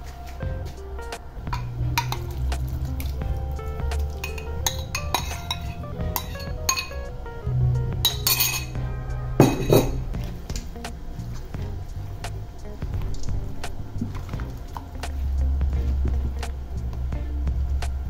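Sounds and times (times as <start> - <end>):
background music: 0.0 - 18.0
bowl clinking against steel bowl: 4.2 - 7.0, 8.1 - 8.8.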